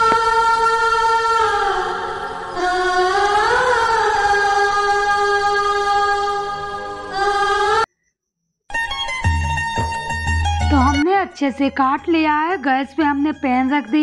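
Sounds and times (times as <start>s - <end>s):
person singing long bending notes: 0.0s - 7.8s.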